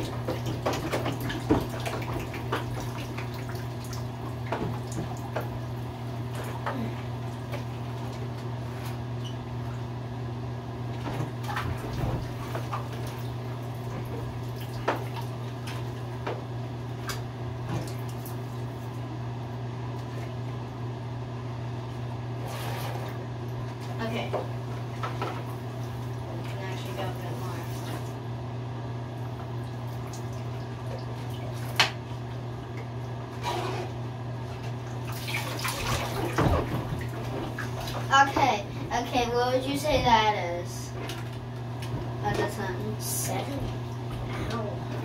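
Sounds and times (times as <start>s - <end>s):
bath water splashing and dripping: 0.0s - 9.9s, 10.8s - 19.1s, 29.0s - 45.0s
steady low hum: 0.0s - 45.0s.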